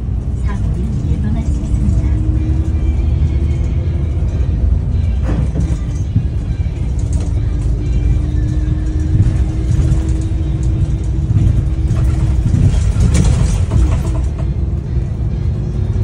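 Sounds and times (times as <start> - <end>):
bus engine rumbling: 0.0 - 16.0
rattles: 0.4 - 15.0.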